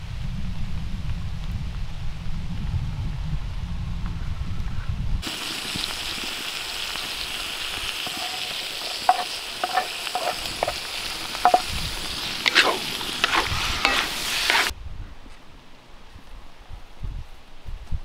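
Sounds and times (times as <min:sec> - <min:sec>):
food sizzling in hot oil: 0:05.2 - 0:14.7
wooden spatula scraping pan: 0:08.0 - 0:14.7.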